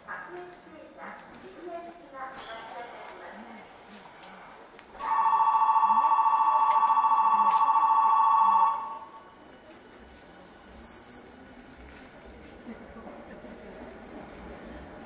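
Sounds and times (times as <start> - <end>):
two-tone electric bell ringing: 5.0 - 9.3.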